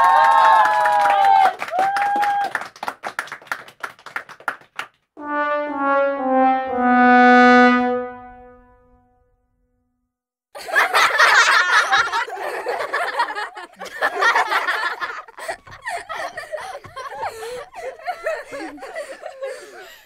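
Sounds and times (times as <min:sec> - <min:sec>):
people clapping: 0:00.0 - 0:05.1
sad trombone: 0:05.2 - 0:09.2
burst of laughter: 0:10.6 - 0:20.0.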